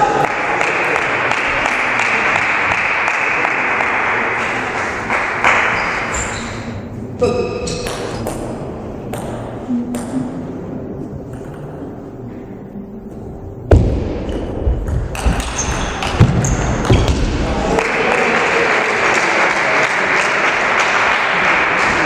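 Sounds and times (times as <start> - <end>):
spectators applauding: 0.0 - 5.7, 17.6 - 22.0
table tennis ball bouncing: 7.4 - 10.4, 11.2 - 12.0, 13.7 - 17.3.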